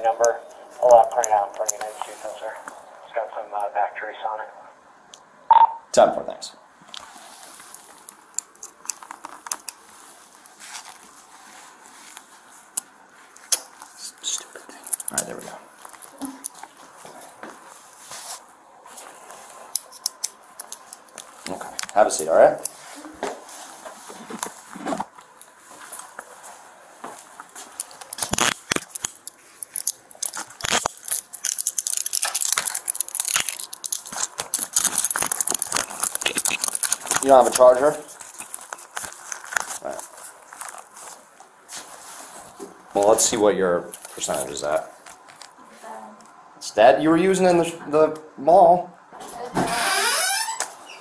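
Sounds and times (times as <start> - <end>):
handcuffs clicking and rattling: 27.8 - 37.3.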